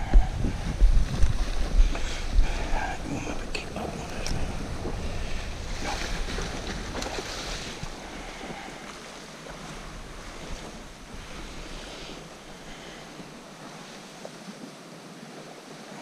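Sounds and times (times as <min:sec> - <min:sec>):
wind buffeting microphone: 0:00.0 - 0:15.7
small waves lapping on shore: 0:00.0 - 0:16.0.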